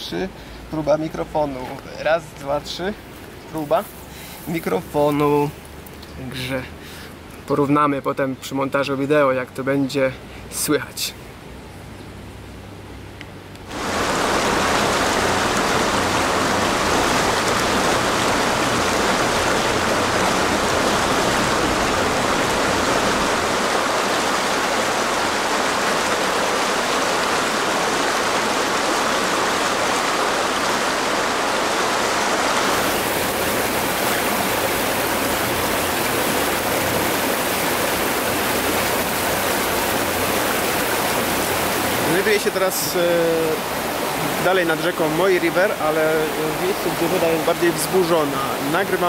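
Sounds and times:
river rushing over rocks: 0:13.7 - 0:49.0.

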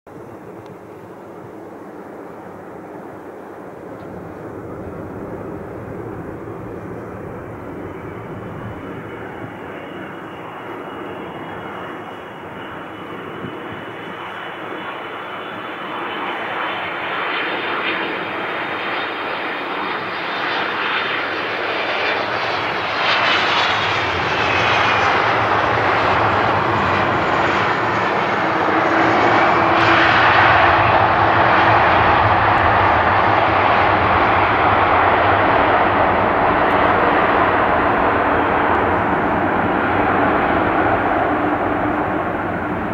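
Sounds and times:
jet engine whine: 0:00.1 - 0:42.9
jet engines roaring: 0:00.1 - 0:42.9.

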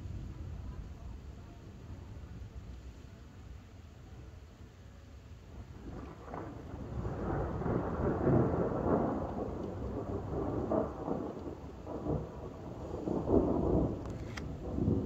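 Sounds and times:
thunder rumbling: 0:05.5 - 0:15.0.

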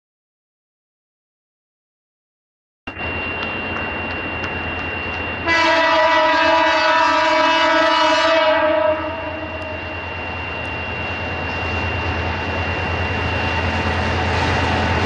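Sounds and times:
train rumbling: 0:02.9 - 0:15.0
locomotive horn blast: 0:05.4 - 0:09.9.

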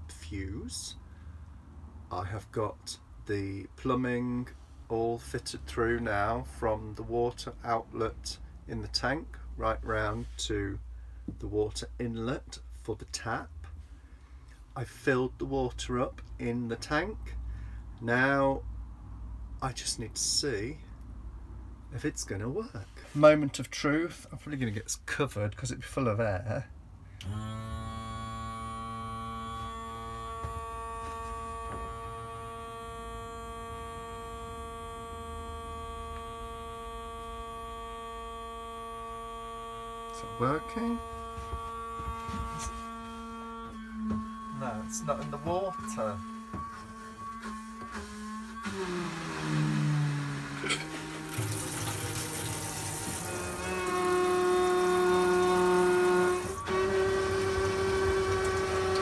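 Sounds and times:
electric water pump humming: 0:27.2 - 0:59.0
tap water running into sink: 0:50.9 - 0:56.1, 0:57.0 - 0:59.0.

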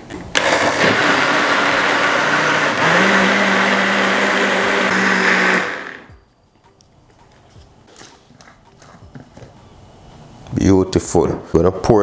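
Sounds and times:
blender motor running: 0:00.4 - 0:06.1.

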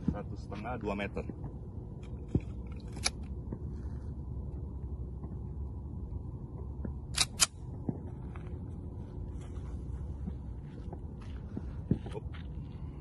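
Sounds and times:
low background rumble: 0:00.0 - 0:13.0
pistol metallic clicks: 0:07.1 - 0:07.6.

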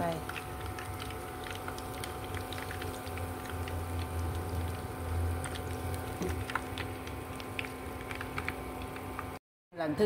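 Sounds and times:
deep-frying sizzle in oil: 0:00.0 - 0:09.4
oil popping and crackling: 0:00.0 - 0:09.4.

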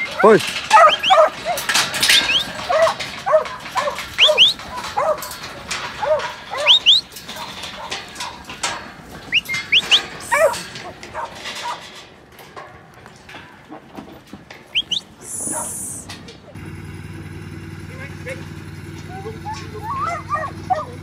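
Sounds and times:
dog barking: 0:00.0 - 0:05.3, 0:06.0 - 0:08.0, 0:10.2 - 0:11.8, 0:15.3 - 0:16.6, 0:19.1 - 0:21.0.

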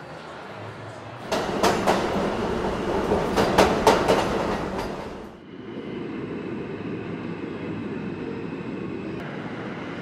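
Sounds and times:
subway train rumbling: 0:00.0 - 0:10.0
wheels clacking over rail joints: 0:01.2 - 0:05.4.

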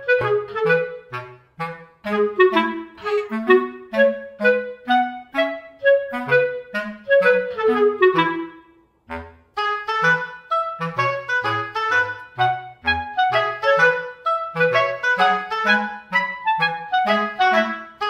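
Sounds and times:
background music melody: 0:00.0 - 0:18.0.

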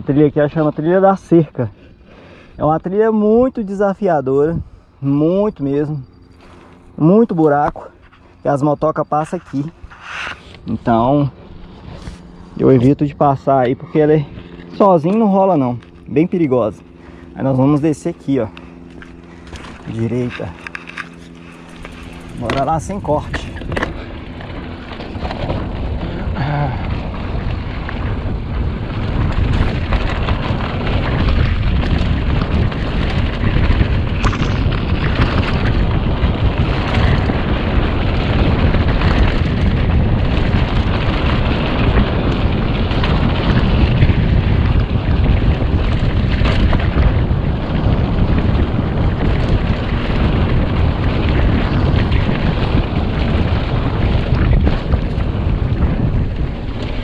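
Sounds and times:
wind rumble on microphone: 0:00.0 - 0:57.0
bike knocks and rattles: 0:18.9 - 0:57.0.

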